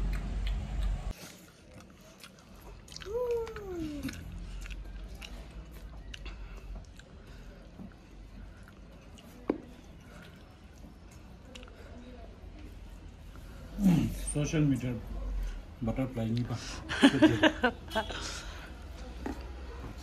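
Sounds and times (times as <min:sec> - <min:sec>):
child chewing rice: 0:00.0 - 0:13.5
child humming: 0:03.0 - 0:04.1.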